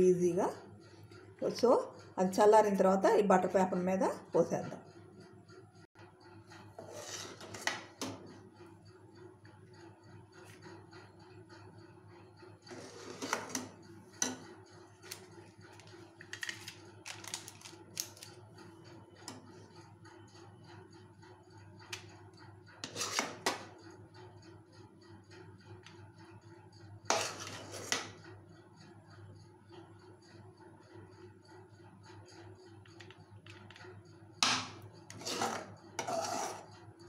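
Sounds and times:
metal spoon scraping metal pan: 6.8 - 8.2, 12.7 - 14.4, 22.8 - 23.6, 27.1 - 28.2, 34.4 - 36.8.

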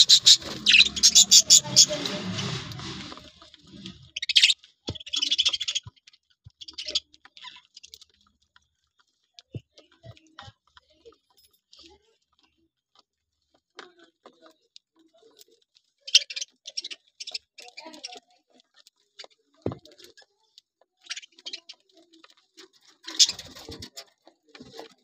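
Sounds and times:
budgie chatter: 0.0 - 8.1, 13.8 - 25.0
birds pecking ticks: 0.0 - 25.0.

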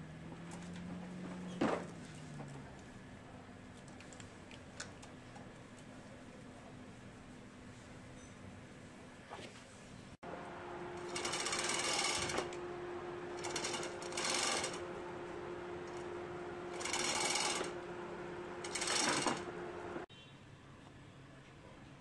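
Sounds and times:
steady low hum: 10.0 - 20.1.

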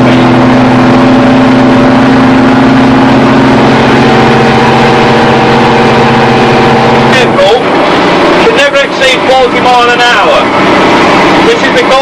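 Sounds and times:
truck engine under load: 0.0 - 12.0.

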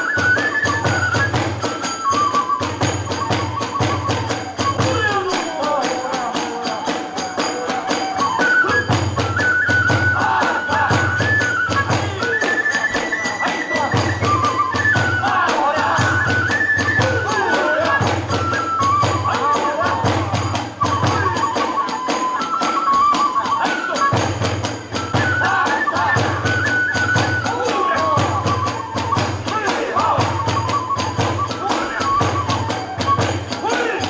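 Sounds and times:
bamboo flute melody: 0.0 - 34.0
rapid drum beats: 0.0 - 34.0
hand cymbals clashing: 1.3 - 14.6.

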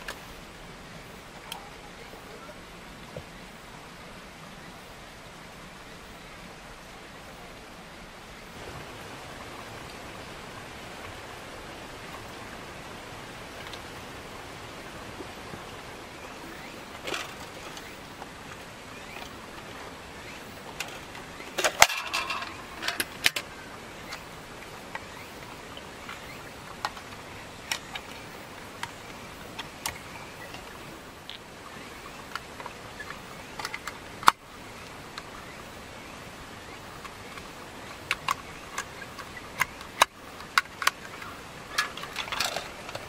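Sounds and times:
steady hiss: 0.0 - 43.0
plastic clicks and clatter: 17.0 - 18.3, 20.7 - 24.2, 26.0 - 31.5, 32.2 - 34.4, 37.0 - 43.0.

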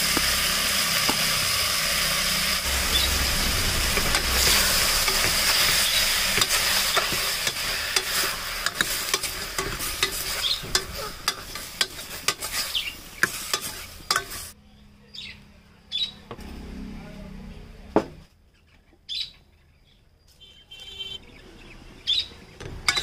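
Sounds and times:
food sizzling in oil: 0.0 - 14.6, 22.8 - 23.0
ladle scraping against pot: 4.0 - 14.5.

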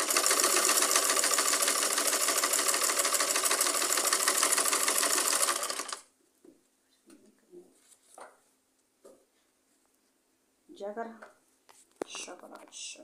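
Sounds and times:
sewing machine stitching: 0.0 - 6.1.

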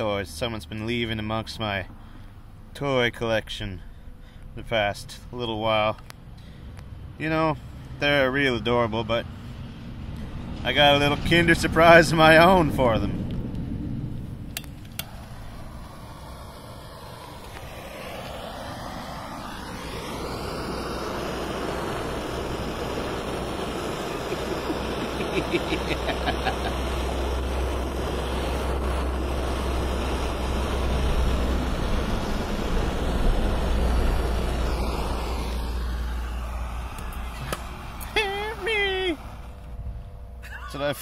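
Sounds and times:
blowtorch flame rushing: 9.3 - 39.9
plastic crackling in flame: 13.2 - 39.8.

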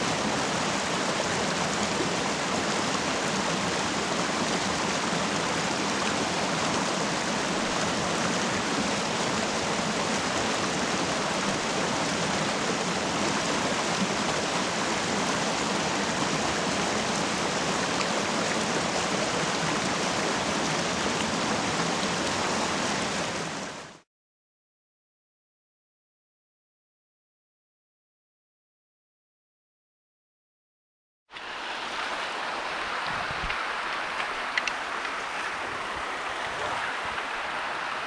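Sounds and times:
creek water rushing over rocks: 0.0 - 24.0, 31.3 - 38.0.

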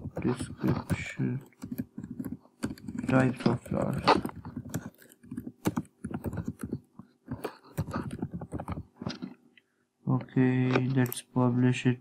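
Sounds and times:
typing on computer keyboard: 0.0 - 9.2.

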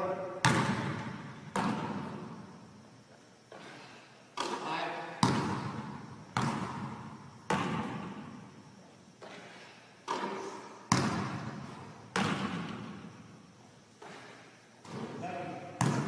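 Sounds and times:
basketball bouncing on gym floor: 0.4 - 2.4, 4.4 - 8.4, 9.2 - 13.2, 14.0 - 16.0.

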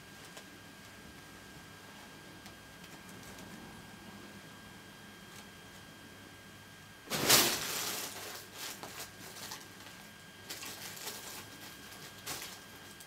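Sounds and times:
cat rustling on carpet: 7.1 - 13.0.

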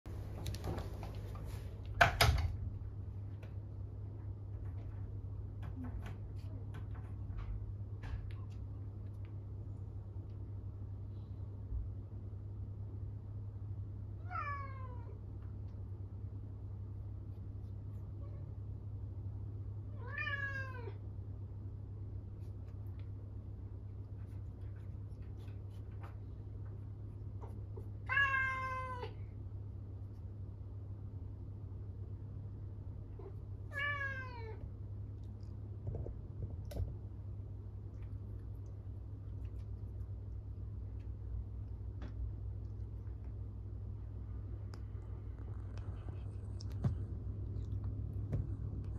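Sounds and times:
steady low hum: 0.1 - 48.9
cat meowing: 14.2 - 15.2, 20.0 - 21.0, 28.1 - 29.2, 33.2 - 34.6.

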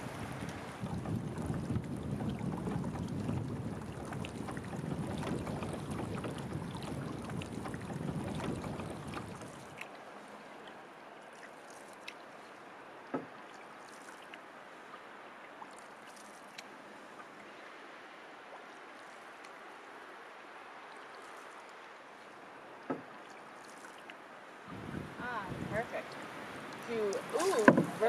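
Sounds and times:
wind rumble on microphone: 0.0 - 9.8, 24.7 - 28.0
paddle water wash: 0.0 - 28.0
light ticks: 15.8 - 17.3, 19.0 - 19.6
knock on canoe: 22.9 - 23.1, 27.4 - 28.0.

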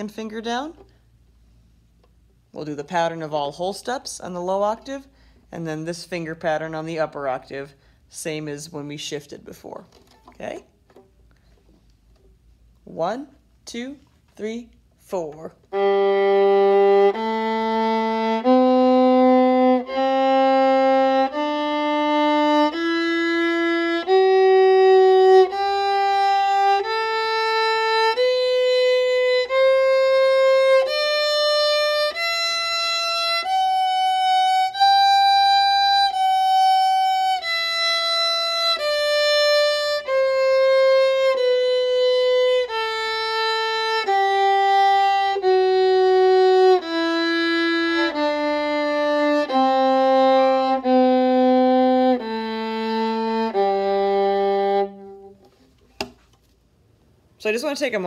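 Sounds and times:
viola playing a slow scale: 15.6 - 55.6.

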